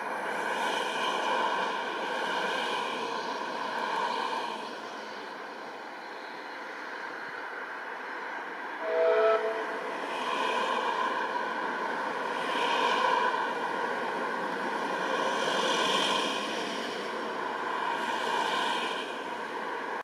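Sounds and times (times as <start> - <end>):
train coaches rolling and clattering: 0.0 - 20.0
steam train whistle blast: 8.8 - 9.8.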